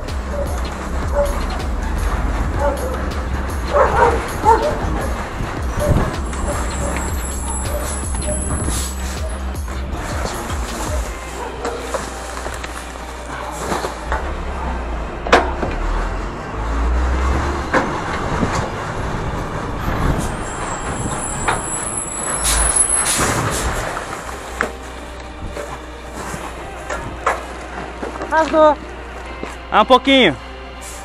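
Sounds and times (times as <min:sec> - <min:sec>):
garbage truck engine rumbling: 0:00.0 - 0:31.0
high squeal: 0:05.7 - 0:09.5, 0:19.8 - 0:24.0
air brake hiss: 0:30.8 - 0:31.0.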